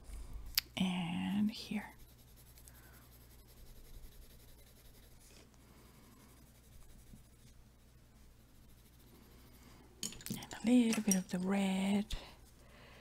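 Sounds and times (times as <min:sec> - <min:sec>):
low steady hum: 0:00.0 - 0:13.0
pencil scratching on paper: 0:00.8 - 0:09.9.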